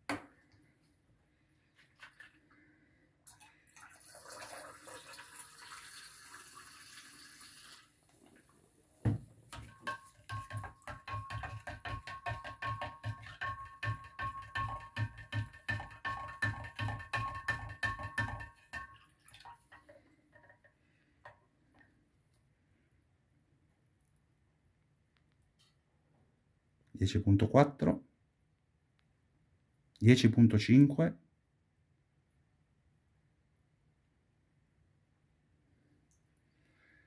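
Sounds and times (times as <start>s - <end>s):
spoon clinking against glass jar: 9.6s - 19.0s.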